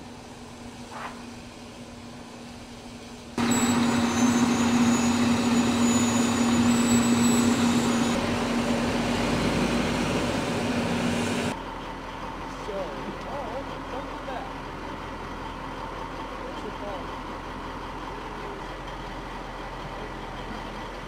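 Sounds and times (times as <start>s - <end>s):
faint high whine: 3.4s - 11.5s
truck engine roaring: 3.4s - 21.0s.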